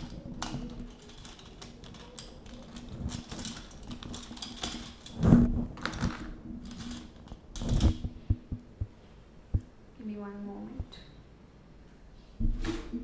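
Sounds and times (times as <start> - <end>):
paper rustling: 0.0 - 8.6
loud thumps: 7.6 - 9.7.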